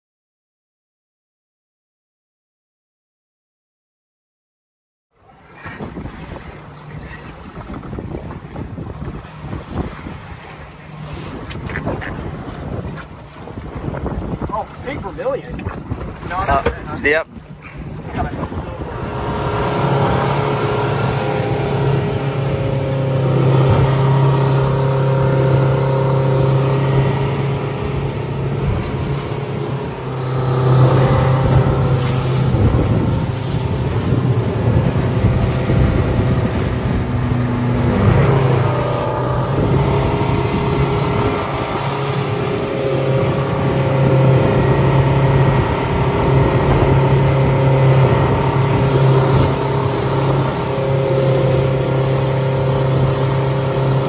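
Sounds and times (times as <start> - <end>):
outboard motor running: 5.1 - 54.0
wind and water hiss: 5.2 - 54.0.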